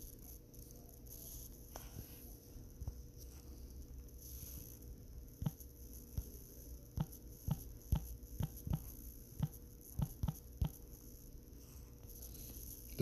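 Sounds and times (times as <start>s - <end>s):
faint steady hum: 0.0s - 13.0s
fingertip taps on touchscreen: 5.4s - 6.3s, 7.0s - 10.8s.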